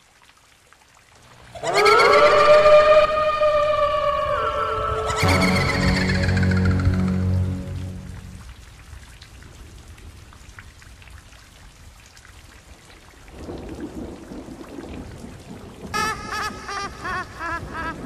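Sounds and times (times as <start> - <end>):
rain falling: 0.0 - 18.0
squeaky chirps: 1.6 - 7.6
thunder rumbling: 13.5 - 18.0.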